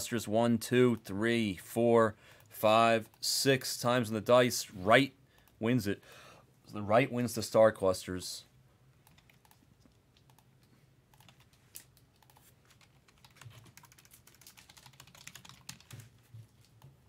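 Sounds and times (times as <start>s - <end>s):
typing on computer keyboard: 9.0s - 9.6s, 11.1s - 17.0s.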